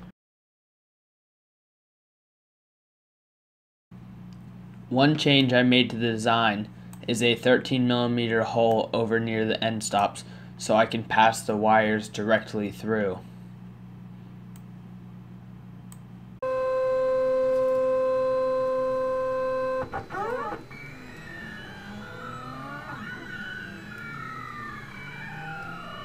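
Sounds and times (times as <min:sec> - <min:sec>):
stepper motors whining: 0:16.4 - 0:26.0.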